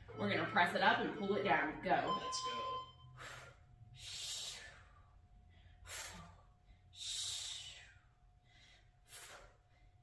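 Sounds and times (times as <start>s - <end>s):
woman breathing hard: 3.1s - 10.0s.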